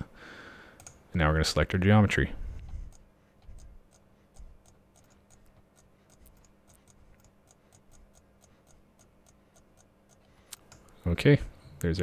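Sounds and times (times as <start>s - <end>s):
low steady hum: 0.0s - 12.0s
computer mouse clicks: 0.8s - 1.0s, 2.9s - 11.0s.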